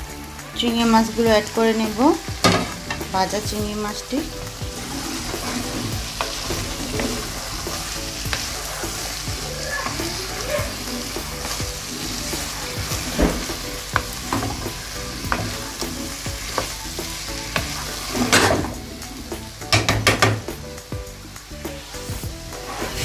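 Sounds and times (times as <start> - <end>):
food sizzling in a frying pan: 0.0 - 23.0
wooden spatula scraping a pan: 2.6 - 16.8.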